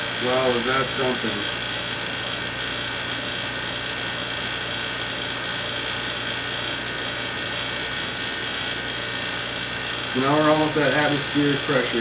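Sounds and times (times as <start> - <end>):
plasma discharge electrical buzz: 0.0 - 12.0.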